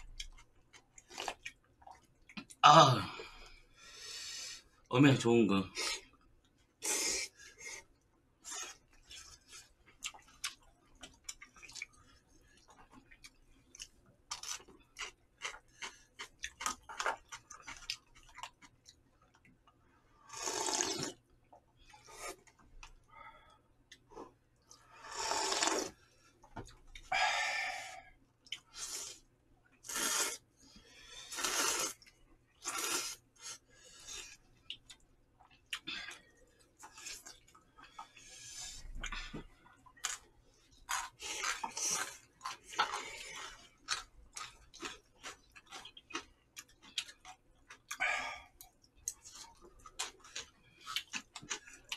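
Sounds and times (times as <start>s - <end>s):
chewing and mouth clicks: 0.0s - 2.6s, 8.5s - 19.8s, 28.4s - 28.7s, 34.2s - 38.2s, 38.8s - 51.9s
slurping noodles: 20.2s - 21.2s, 24.9s - 26.0s, 29.8s - 30.4s, 31.2s - 34.3s.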